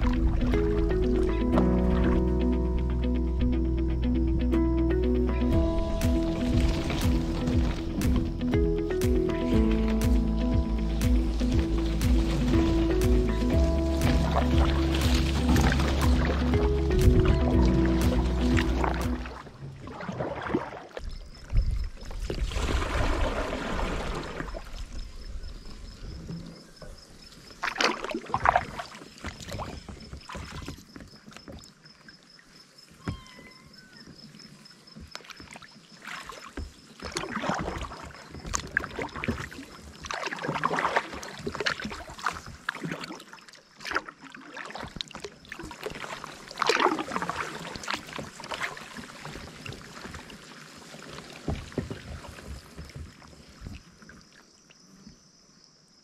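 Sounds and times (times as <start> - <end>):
kayak paddle splashing in water: 0.0 - 2.4, 5.5 - 25.9, 27.4 - 54.7
quiet water sounds: 0.0 - 56.0.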